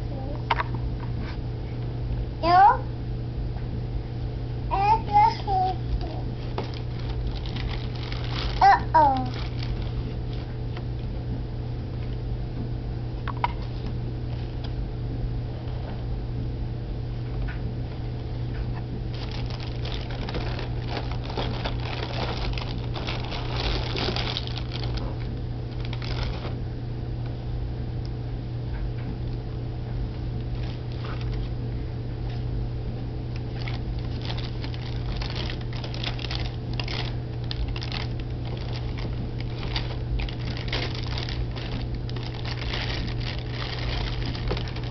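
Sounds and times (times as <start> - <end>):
steady low hum: 0.0 - 44.9
plastic and cardboard crinkling: 5.8 - 10.6, 17.9 - 26.6, 30.4 - 31.5, 33.4 - 44.9.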